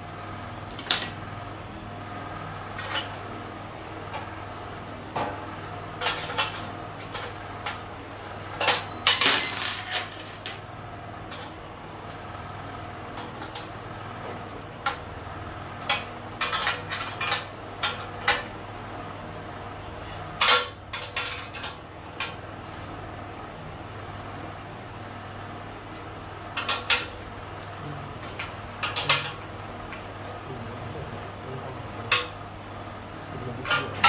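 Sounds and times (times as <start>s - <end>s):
steady low hum: 0.0s - 34.0s
metal bolts and tools clinking: 0.8s - 1.3s.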